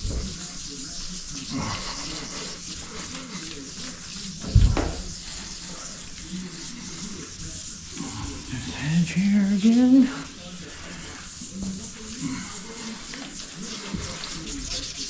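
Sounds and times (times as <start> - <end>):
wet sandpaper rubbing: 0.0 - 15.0
thump: 4.4 - 5.1.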